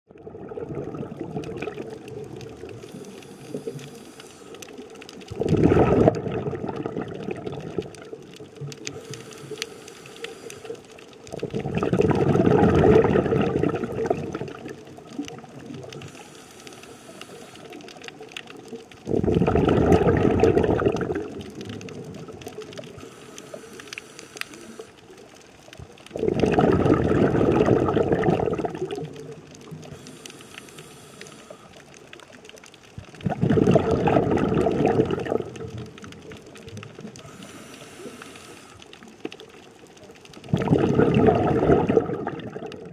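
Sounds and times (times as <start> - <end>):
underwater air bubbles: 0.1 - 42.9
faint hiss: 1.9 - 5.2, 8.6 - 11.3, 14.4 - 18.6, 22.5 - 25.3, 28.9 - 32.4, 35.7 - 39.4.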